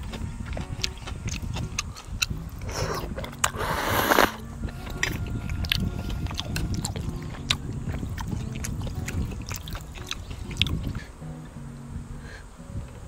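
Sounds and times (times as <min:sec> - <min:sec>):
wet chewing: 0:00.0 - 0:11.1
slurping noodles: 0:01.3 - 0:11.0.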